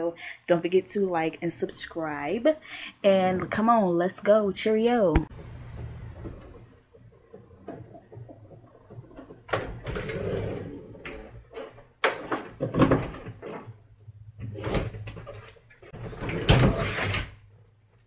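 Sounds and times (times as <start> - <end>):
closet doors clattering and knocking: 5.5 - 17.3.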